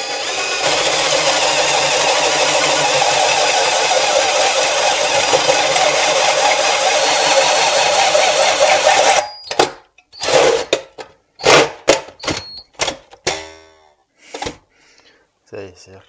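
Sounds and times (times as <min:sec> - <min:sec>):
hole saw grinding steel: 0:00.0 - 0:09.4.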